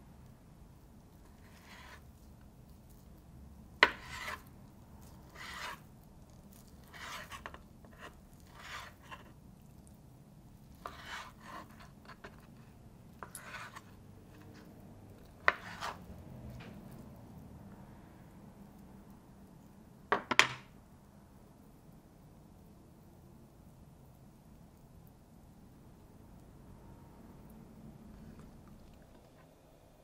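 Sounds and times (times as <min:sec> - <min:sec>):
knife cutting on board: 0:01.4 - 0:02.0, 0:03.8 - 0:04.5, 0:05.3 - 0:05.8, 0:06.8 - 0:09.3, 0:10.8 - 0:12.5, 0:13.2 - 0:14.6, 0:15.4 - 0:16.0.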